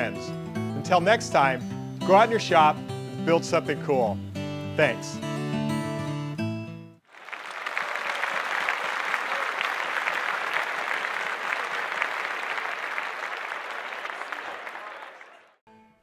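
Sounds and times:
applause: 7.0 - 15.6.

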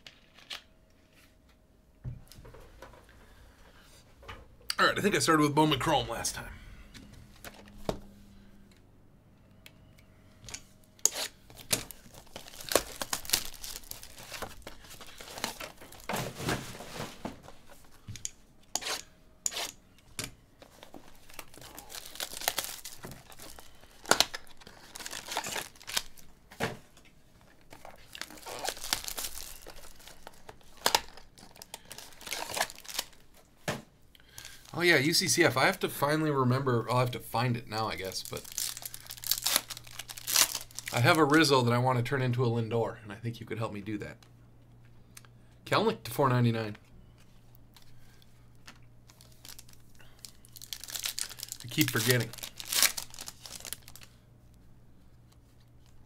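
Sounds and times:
plastic shrink-wrap tearing: 11.2 - 16.1, 20.8 - 26.3, 27.7 - 33.2, 38.0 - 41.2, 49.1 - 54.2.

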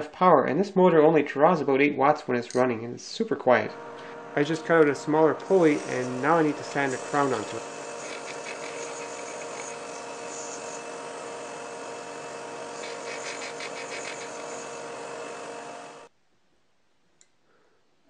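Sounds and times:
belt sander sanding wood: 4.0 - 16.1.

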